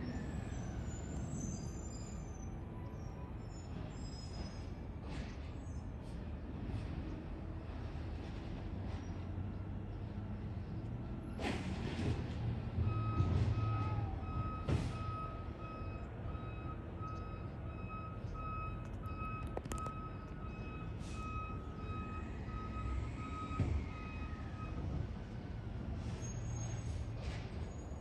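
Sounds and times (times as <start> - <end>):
reversing alarm beeping: 12.8 - 25.0.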